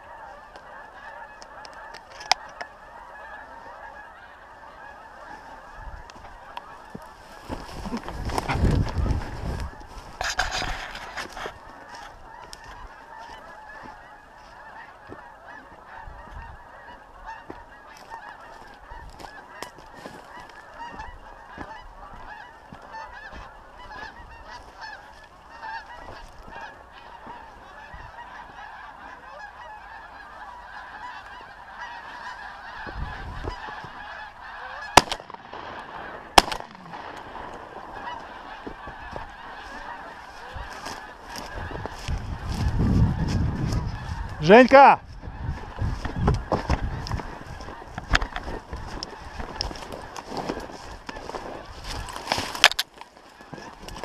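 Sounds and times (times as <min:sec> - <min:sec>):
geese honking: 0:00.0 - 0:54.0
shotgun shots: 0:34.9 - 0:37.6.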